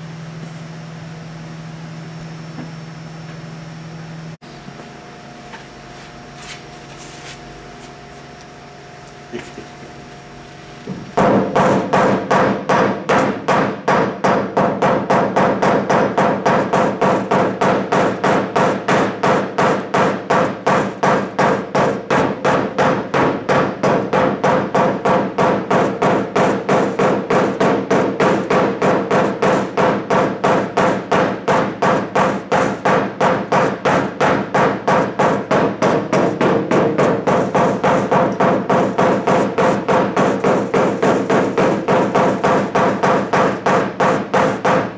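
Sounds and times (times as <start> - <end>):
hammer tapping on sheet metal: 10.9 - 44.9.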